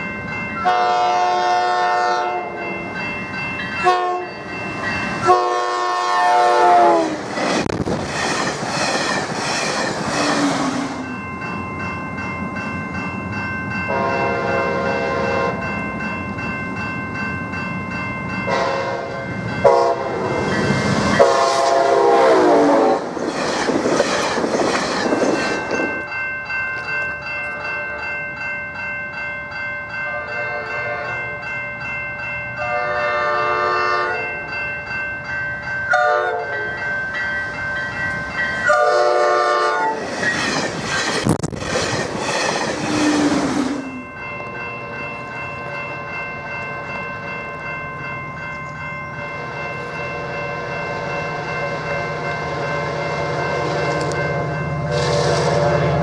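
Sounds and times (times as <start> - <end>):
electronic crossing bells ringing: 0.0 - 7.8, 9.1 - 21.8, 23.0 - 41.4, 42.5 - 56.0
passing train rushing: 0.0 - 56.0
train horn blasts: 0.6 - 2.6, 3.8 - 4.3, 5.2 - 7.2, 13.9 - 15.6, 18.5 - 20.4, 21.2 - 23.0, 30.1 - 31.2, 32.6 - 34.2, 35.9 - 36.7, 38.6 - 40.0, 54.8 - 56.0.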